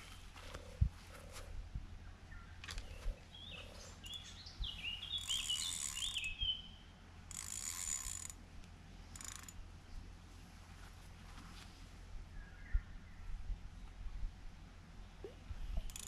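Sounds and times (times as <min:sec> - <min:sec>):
small bird chirping: 0:02.3 - 0:06.8
fishing reel whirring: 0:05.2 - 0:06.3, 0:07.3 - 0:08.4, 0:09.1 - 0:09.6, 0:15.8 - 0:16.0.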